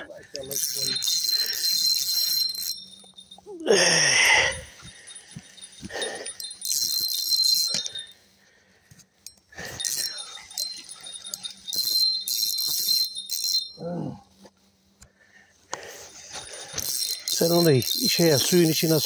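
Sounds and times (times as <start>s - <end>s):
fishing reel drag buzzing: 0.4s - 3.4s, 4.2s - 8.2s, 9.2s - 13.8s, 16.0s - 19.0s.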